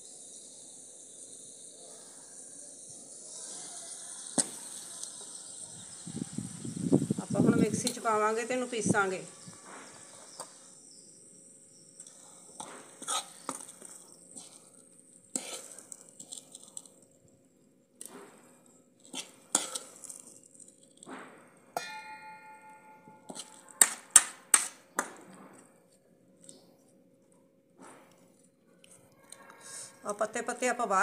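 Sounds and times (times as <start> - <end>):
metal ladle scraping a pan: 12.2 - 14.7, 15.3 - 16.7, 19.1 - 20.2, 23.0 - 23.9.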